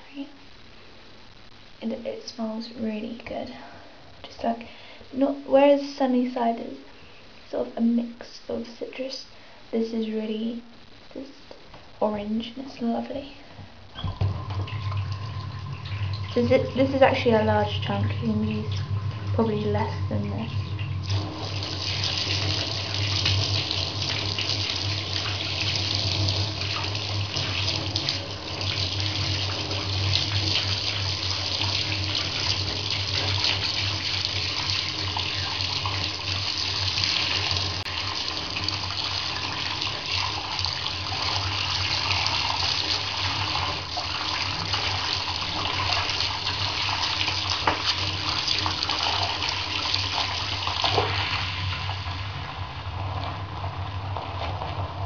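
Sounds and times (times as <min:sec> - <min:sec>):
tap water splashing into bath: 0:20.6 - 0:51.5.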